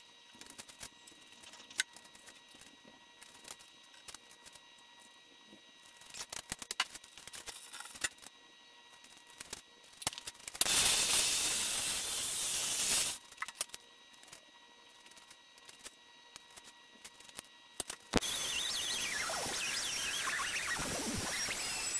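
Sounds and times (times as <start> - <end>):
hiss of air or gas: 10.6 - 13.2.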